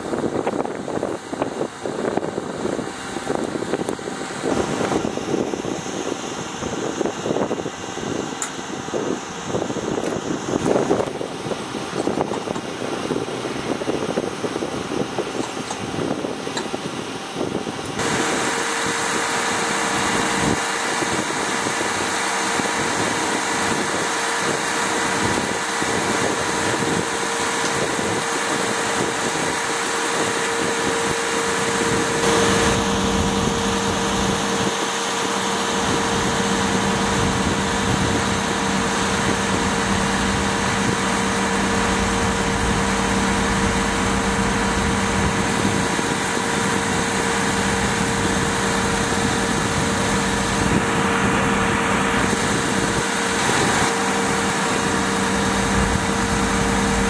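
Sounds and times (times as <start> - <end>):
engine running with whine: 0.0 - 57.0
low steady hum: 35.8 - 57.0.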